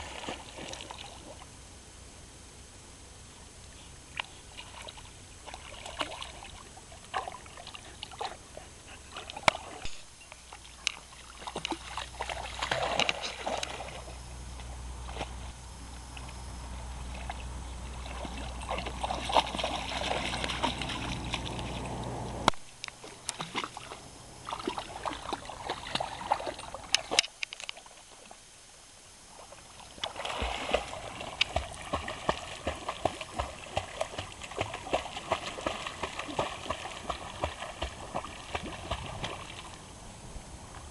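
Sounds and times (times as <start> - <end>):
puppy splashing in water: 0.0 - 1.5, 4.1 - 15.5, 17.0 - 22.3, 23.0 - 27.9, 29.8 - 39.9
low rumble: 13.7 - 22.6.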